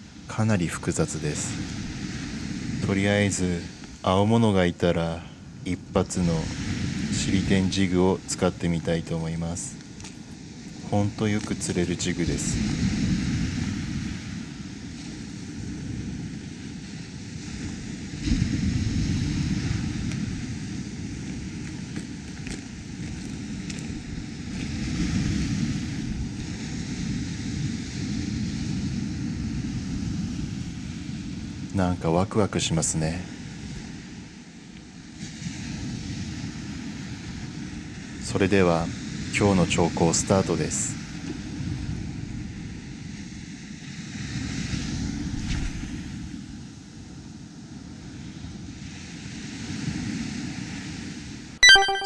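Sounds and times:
small waves breaking on beach: 0.0s - 51.6s
wind buffeting microphone: 12.2s - 31.7s.

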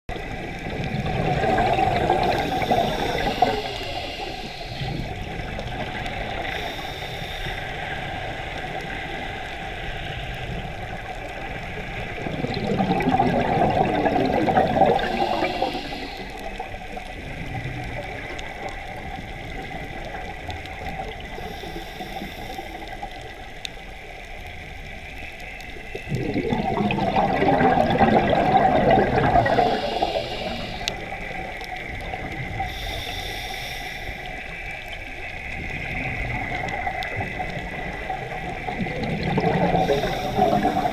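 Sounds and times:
exhaled air bubbling underwater: 0.1s - 40.9s
water wash noise: 11.9s - 16.3s, 25.9s - 31.0s.

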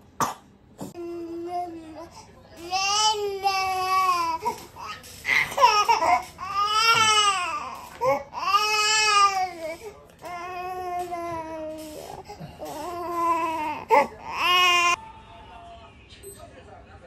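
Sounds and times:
baby crying: 2.7s - 15.0s.

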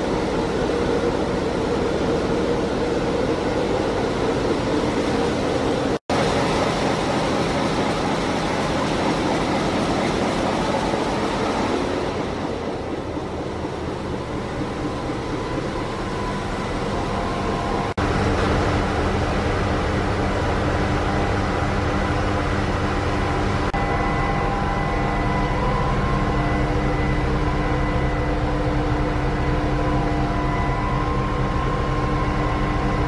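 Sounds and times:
loud engine room noise: 0.0s - 33.0s
machinery hum with tones: 0.0s - 33.0s.

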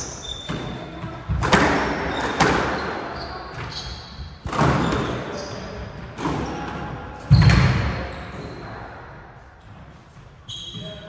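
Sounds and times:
squash ball hits echoing: 0.4s - 5.3s, 6.0s - 8.1s.

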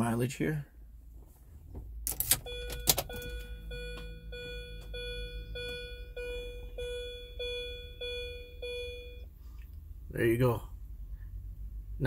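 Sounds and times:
car warning chime beeping: 2.2s - 9.4s.

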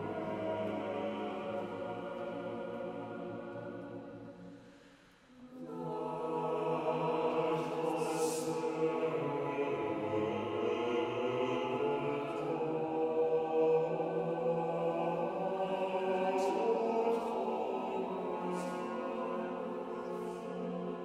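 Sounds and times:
mixed choir singing: 0.0s - 4.7s, 5.4s - 21.0s.

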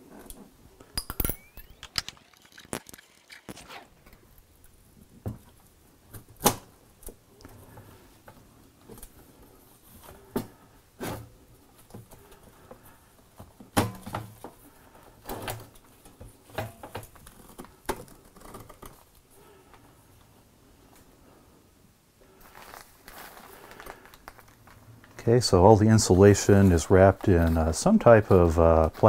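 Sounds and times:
handling rustle: 22.3s - 25.2s, 25.9s - 29.0s.

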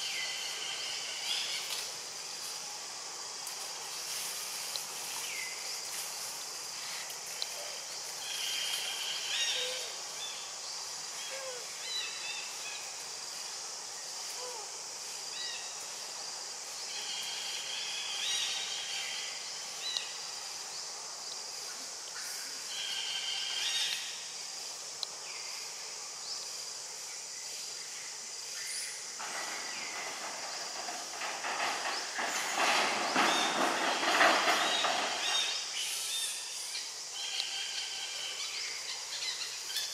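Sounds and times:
steady high hiss: 0.0s - 39.9s.

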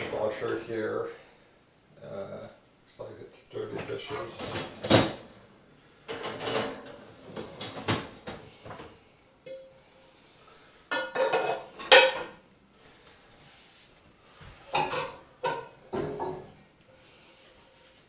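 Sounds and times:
dishes clattering: 6.1s - 8.4s, 10.9s - 12.4s, 14.7s - 16.6s.

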